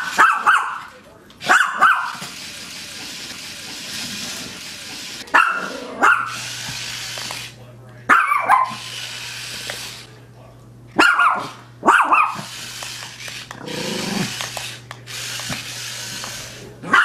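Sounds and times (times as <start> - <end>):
dog barking: 0.0 - 0.9, 1.5 - 2.2, 5.3 - 6.4, 8.1 - 8.8, 11.0 - 12.5
dog growling: 13.6 - 14.3.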